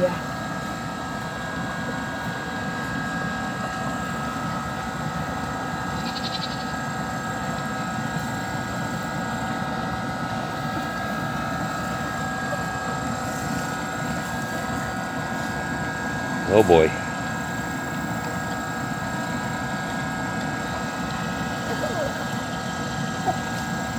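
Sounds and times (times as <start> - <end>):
steady hum: 0.0 - 23.9.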